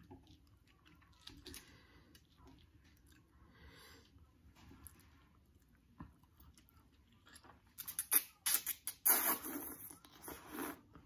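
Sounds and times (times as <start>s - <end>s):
noodles being slurped: 7.8s - 10.9s.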